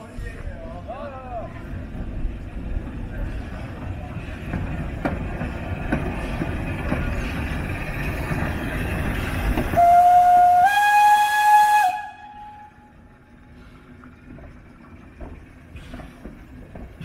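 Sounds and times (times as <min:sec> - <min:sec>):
steam locomotive hissing steam: 0:03.0 - 0:14.6
steam whistle blowing: 0:09.8 - 0:12.9.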